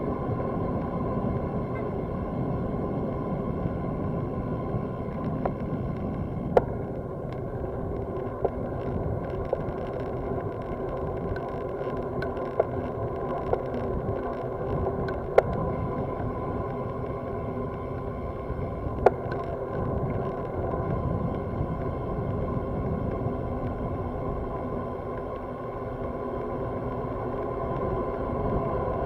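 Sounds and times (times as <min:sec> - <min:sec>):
steady hum: 0:00.0 - 0:29.0
wind and tyre rumble: 0:00.0 - 0:29.0
sharp ticks: 0:05.1 - 0:15.7.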